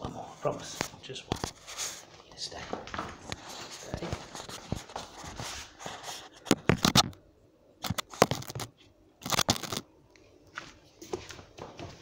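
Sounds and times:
crinkly crackling and rustling: 0.5 - 7.2, 7.8 - 10.4.

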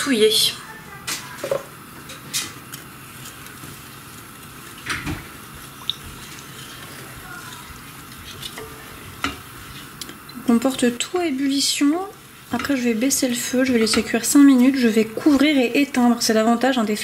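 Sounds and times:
spatula stirring rice in pot: 2.6 - 15.8.

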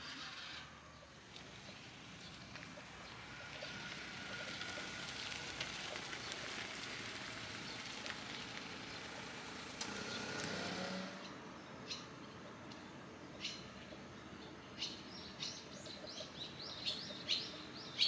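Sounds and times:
small bird chirping: 13.4 - 18.0.

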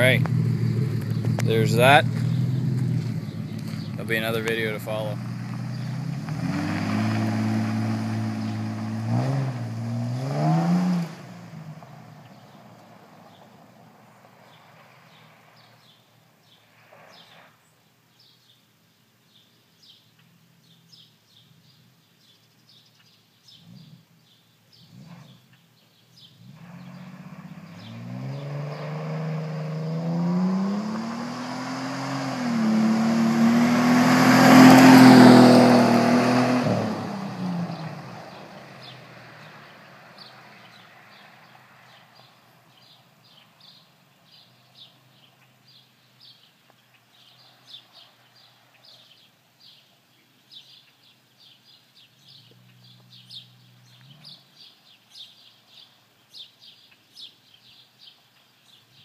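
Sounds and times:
car engine accelerating past: 0.0 - 4.1, 5.0 - 15.8, 26.2 - 42.3
birds chirping: 0.0 - 9.4, 19.3 - 59.0.

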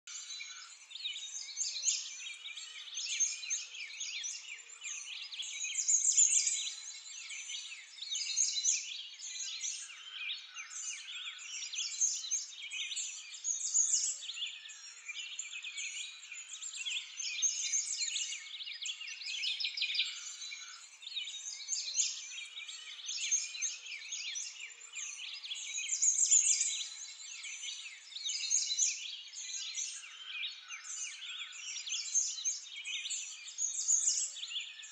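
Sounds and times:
chorus of small birds chirping: 0.0 - 34.9.

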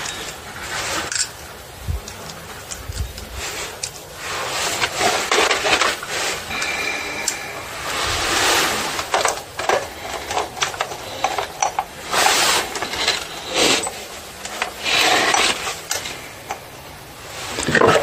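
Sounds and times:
metal parts rubbing: 0.0 - 18.0
saw chain clicking and rattling: 4.7 - 16.7.

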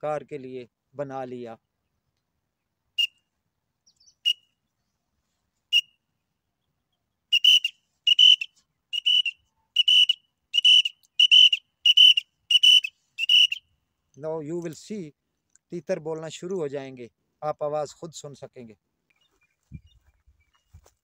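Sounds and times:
toy whistle chirps: 7.3 - 13.7.

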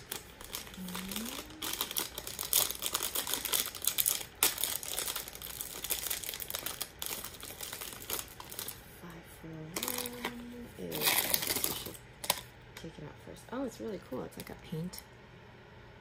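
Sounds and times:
plastic wrapper crinkling: 0.0 - 8.9, 9.8 - 12.5.

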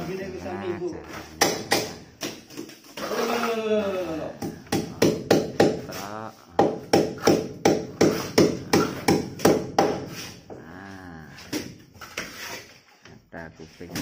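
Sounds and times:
claw hammer striking nails: 4.4 - 5.8, 6.6 - 10.2.

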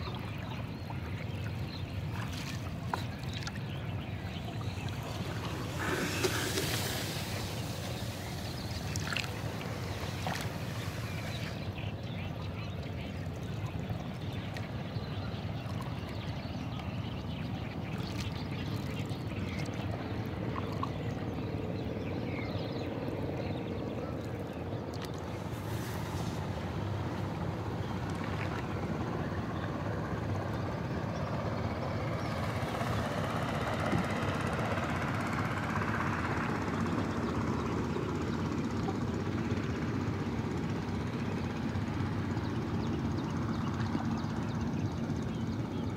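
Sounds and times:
steady low rumble: 0.0 - 35.6
oar splashing in water: 2.0 - 11.6.

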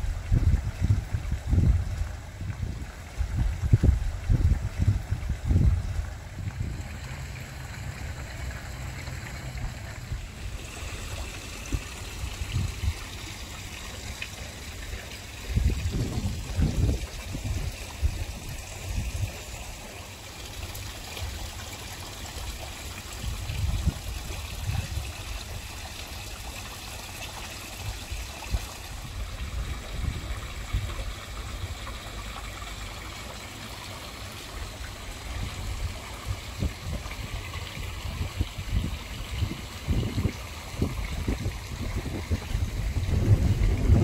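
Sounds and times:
low rumbles: 0.0 - 19.7
waterfall splashing into pond: 0.0 - 44.0.

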